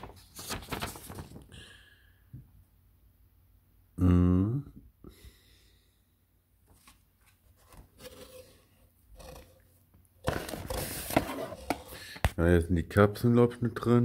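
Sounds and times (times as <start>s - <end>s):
packaging rustling and knocking: 10.2s - 12.3s.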